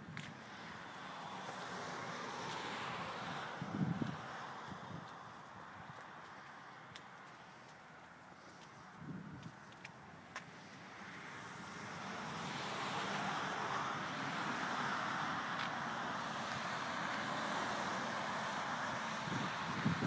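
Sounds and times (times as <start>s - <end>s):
road traffic noise: 0.0s - 20.0s.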